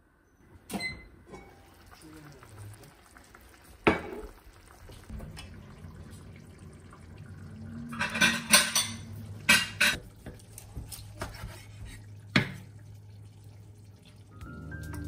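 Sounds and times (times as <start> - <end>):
tableware clinking and clattering: 7.9 - 10.0.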